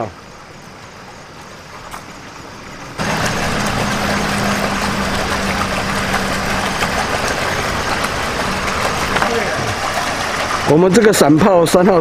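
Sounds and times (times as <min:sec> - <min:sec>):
steady low hum: 0:02.6 - 0:10.7.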